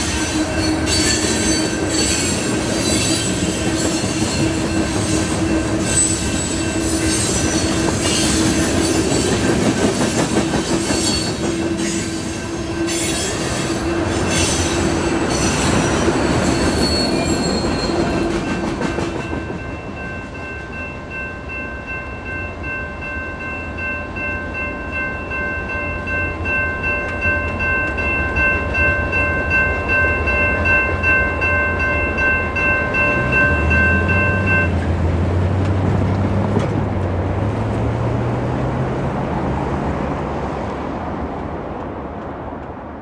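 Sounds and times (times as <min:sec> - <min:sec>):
railroad crossing bell ringing: 0:00.0 - 0:35.5
freight train rumble: 0:00.0 - 0:43.0
road vehicle engine hum: 0:33.1 - 0:43.0.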